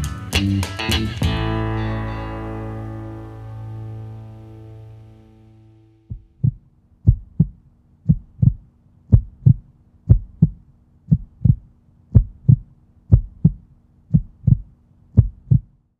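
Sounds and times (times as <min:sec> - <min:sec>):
heartbeat thumps: 0:06.1 - 0:15.8.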